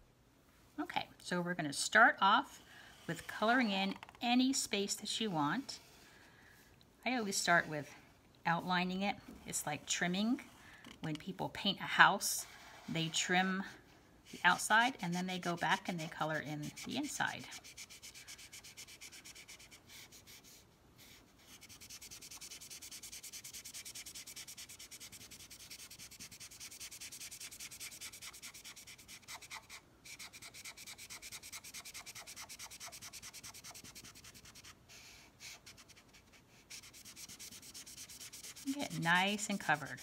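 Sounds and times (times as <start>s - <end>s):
marker scratching on paper: 14.3s - 40.0s.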